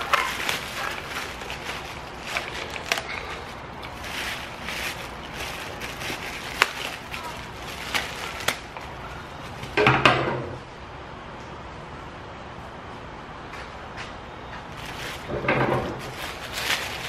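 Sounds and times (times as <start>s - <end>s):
plastic wrap crinkling and tearing: 0.0s - 9.8s, 14.7s - 17.0s.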